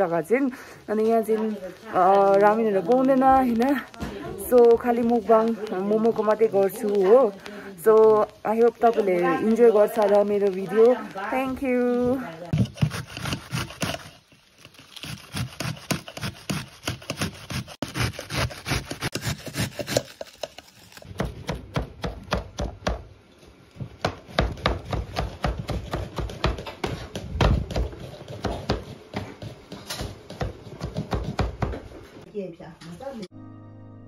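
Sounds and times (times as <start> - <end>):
cabbage grating on metal grater: 12.5 - 21.1
knife chopping on cutting board: 12.6 - 14.1, 15.0 - 20.4, 24.0 - 31.9.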